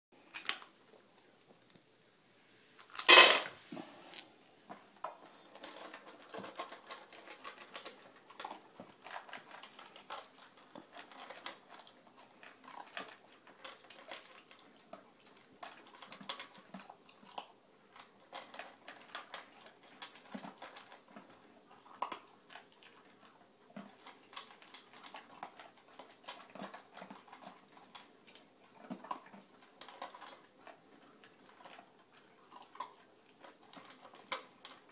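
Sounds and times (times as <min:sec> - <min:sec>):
dogs crunching kibble: 0:00.2 - 0:01.8, 0:04.1 - 0:34.9
kibble clinking on metal bowls: 0:03.0 - 0:03.5.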